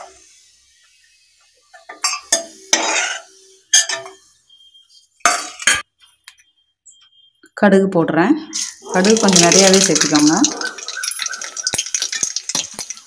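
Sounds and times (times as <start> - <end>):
metal spoon scraping in pan: 1.9 - 4.3.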